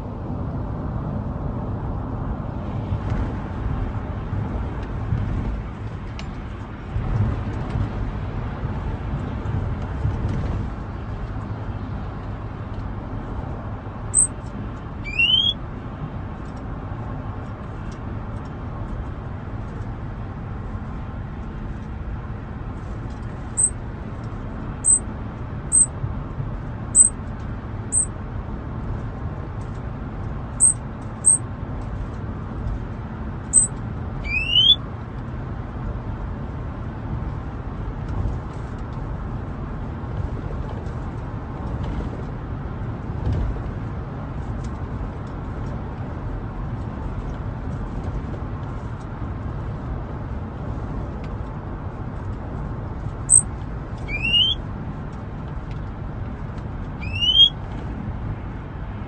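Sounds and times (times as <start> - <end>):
car road rumble: 0.0 - 59.0
bird rising whistle: 15.0 - 15.6, 24.8 - 25.0, 33.6 - 34.8, 54.1 - 54.6, 57.0 - 57.6
songbird chip notes: 15.1 - 15.6, 34.3 - 34.8, 54.1 - 54.6, 57.0 - 57.5.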